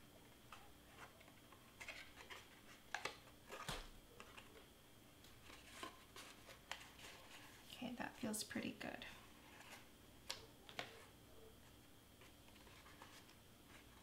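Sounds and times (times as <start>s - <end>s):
cardstock rustling: 5.3s - 7.7s.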